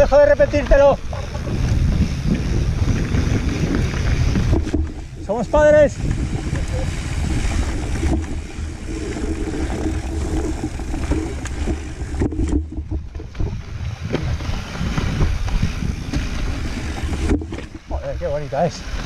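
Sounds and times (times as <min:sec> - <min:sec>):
bike knocking over bumps: 0:00.0 - 0:18.1
tyres rumbling over dirt and stones: 0:00.0 - 0:19.0
wind buffeting microphone: 0:00.0 - 0:19.0.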